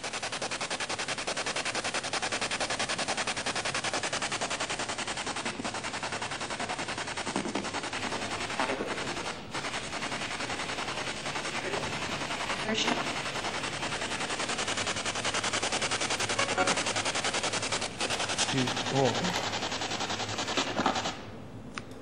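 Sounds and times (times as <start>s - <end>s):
radio static bursts stuttering: 0.0s - 21.3s.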